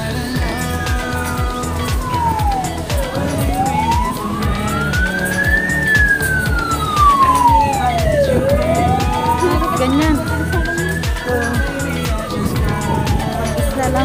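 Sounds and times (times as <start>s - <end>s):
ambulance siren wailing: 0.3s - 14.0s.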